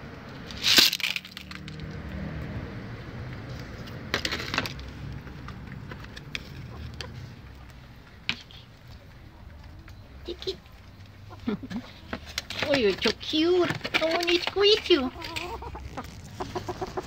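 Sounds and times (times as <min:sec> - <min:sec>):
corn kernels scattering on ground: 0:00.5 - 0:01.9
chickens pecking with sharp taps: 0:03.3 - 0:17.0.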